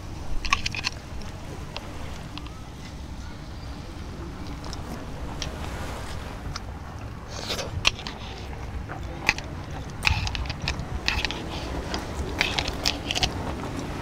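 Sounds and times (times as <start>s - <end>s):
chewing and crunching: 0.0s - 3.1s, 4.2s - 14.0s
chopsticks clicking on plastic jar: 7.5s - 13.9s.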